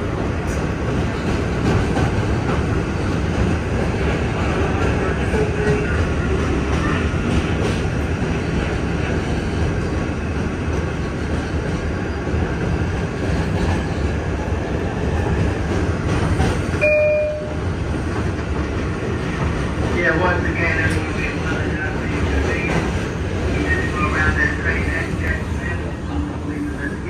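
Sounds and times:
train wheels rumbling on rails: 0:00.0 - 0:27.0
short high tone: 0:16.8 - 0:17.6.

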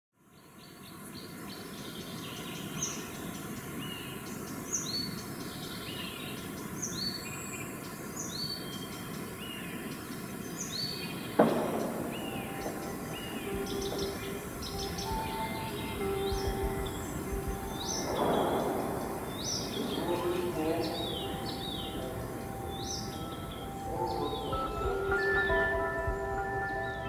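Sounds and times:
outdoor noise haze: 0:00.2 - 0:27.0
small birds chirping: 0:00.3 - 0:27.0
sudden loud hit: 0:11.4 - 0:15.0.

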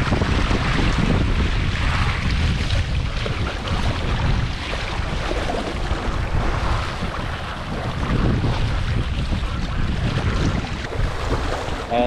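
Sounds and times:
water splashing along hull: 0:00.0 - 0:12.0
wind buffeting microphone: 0:00.0 - 0:12.0.

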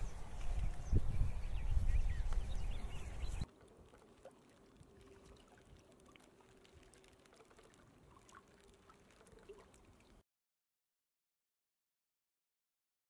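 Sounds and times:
water lapping and trickling: 0:03.2 - 0:10.2.

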